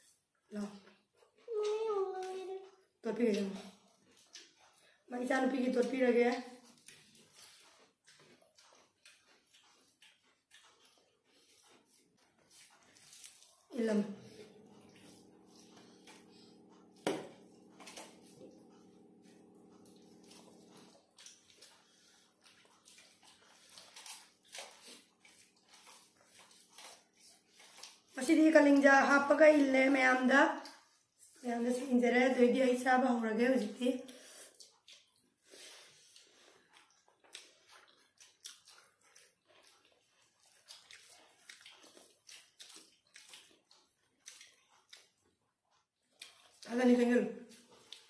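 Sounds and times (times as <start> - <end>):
mouths chewing: 0.0 - 48.0
fingers mixing rice on plates: 6.0 - 29.0
fingers squishing rice and curry: 6.6 - 13.7, 34.2 - 46.6.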